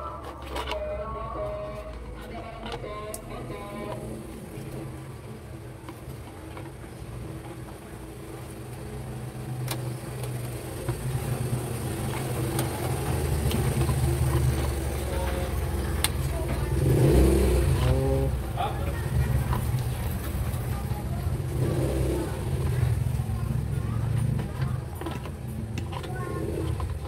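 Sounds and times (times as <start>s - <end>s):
low engine-like rumble: 0.0s - 27.0s
sharp plastic clicks: 9.6s - 16.2s.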